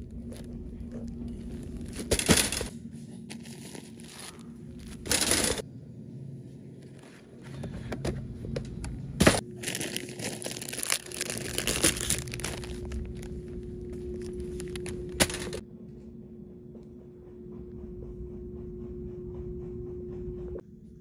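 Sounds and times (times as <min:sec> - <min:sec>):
rustling and crinkling handling: 0:00.0 - 0:05.6, 0:09.2 - 0:15.6
faint steady hum: 0:00.0 - 0:21.0.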